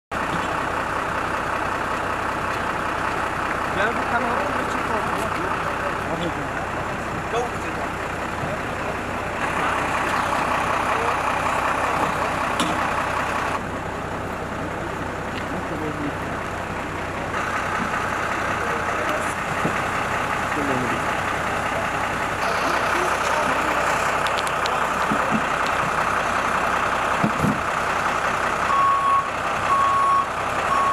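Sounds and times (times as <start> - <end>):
fire engine idling: 0.1 - 30.9
reversing beeper: 28.6 - 30.9.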